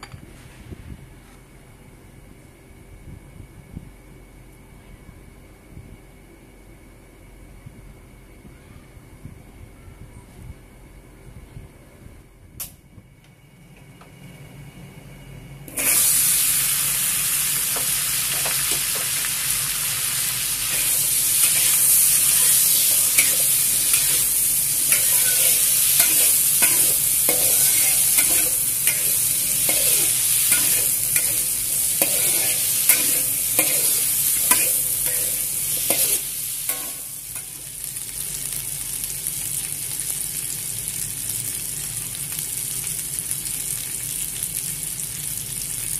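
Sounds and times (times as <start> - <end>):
food sizzling in oil: 15.7 - 45.9
metal spatula scraping wok: 20.6 - 37.5.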